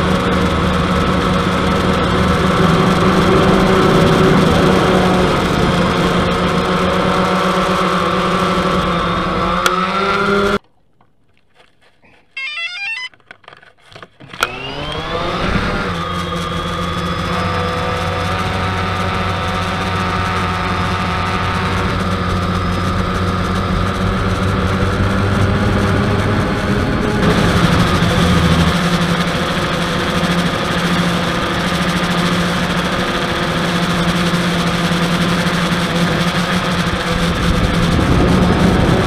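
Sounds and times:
drone motors whining: 0:00.0 - 0:10.6, 0:12.3 - 0:13.6, 0:14.2 - 0:39.0
electronic beeps: 0:12.4 - 0:13.2.

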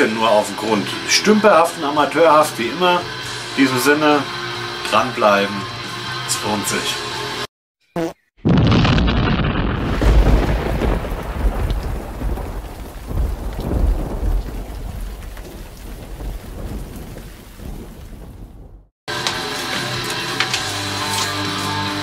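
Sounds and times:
thunder rumbling: 0:08.5 - 0:18.9
steady rain: 0:09.8 - 0:18.8.

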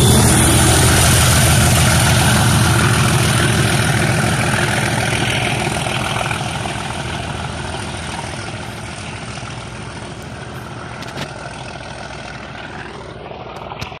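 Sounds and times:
diesel locomotives working hard: 0:00.0 - 0:14.0.

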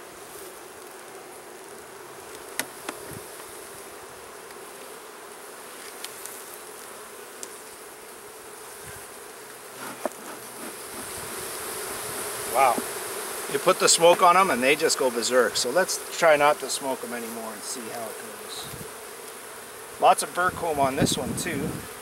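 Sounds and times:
bees buzzing: 0:00.0 - 0:22.0.

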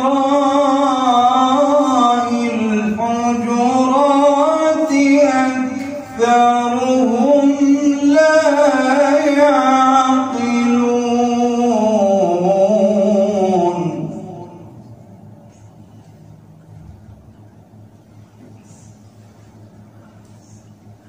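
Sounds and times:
man chanting melodically: 0:00.0 - 0:15.2.

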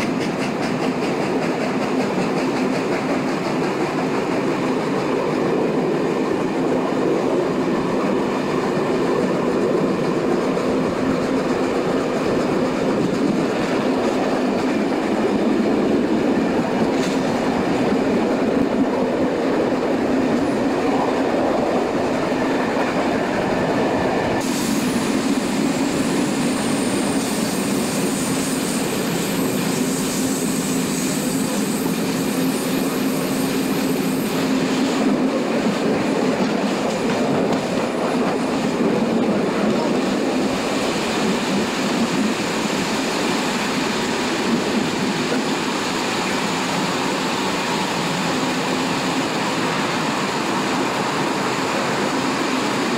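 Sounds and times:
train wheels rumbling and clattering: 0:00.0 - 0:52.9
high wheel squeal: 0:24.8 - 0:34.8.

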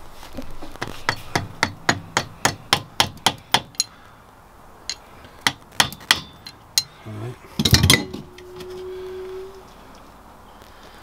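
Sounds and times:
hammer tapping metal drift: 0:01.1 - 0:04.0, 0:04.9 - 0:07.0.

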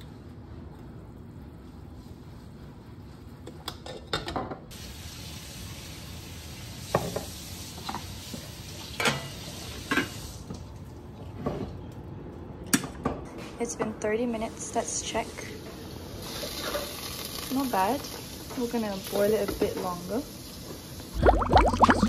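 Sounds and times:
pot simmering hiss: 0:04.7 - 0:10.6, 0:14.5 - 0:22.0.

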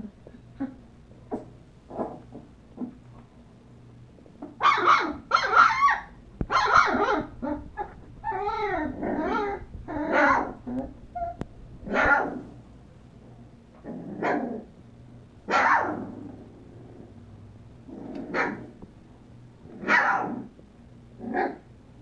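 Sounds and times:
puppies whining: 0:04.6 - 0:11.5
puppies yipping and barking: 0:04.6 - 0:12.2.

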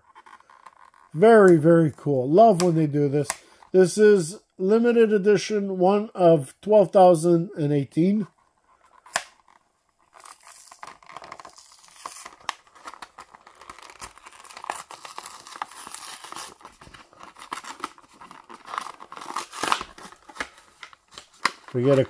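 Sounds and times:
plastic crinkling and crackling: 0:00.0 - 0:01.2, 0:08.3 - 0:22.0
plastic blister pack tearing: 0:08.8 - 0:22.0.

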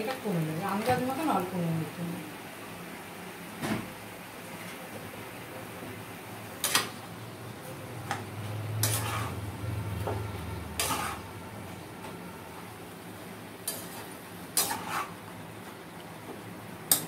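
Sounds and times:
spatula scraping a pan: 0:08.7 - 0:09.5, 0:10.2 - 0:11.4, 0:13.6 - 0:15.2.

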